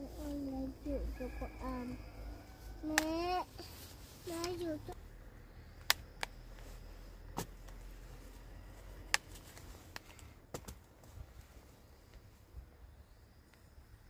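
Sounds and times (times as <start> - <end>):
fruit stems snapping: 2.9 - 3.2.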